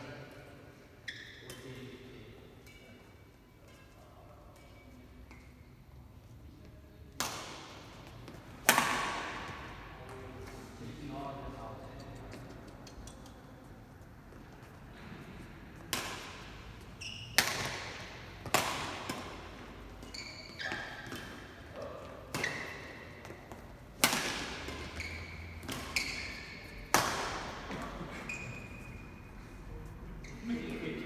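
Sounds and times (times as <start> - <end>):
shoe squeaks on court floor: 1.0 - 1.9, 16.8 - 17.7, 19.9 - 21.6, 22.3 - 23.1, 24.6 - 26.9, 27.8 - 29.3, 30.2 - 30.7
rackets striking shuttlecock: 7.1 - 10.6, 15.8 - 27.9.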